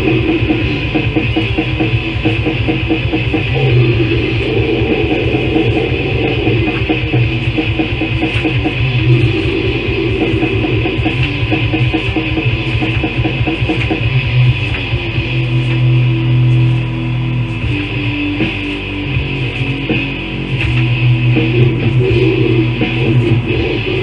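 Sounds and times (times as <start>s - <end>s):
distorted electric guitars: 0.0s - 24.0s
fast dense drumming: 0.0s - 24.0s.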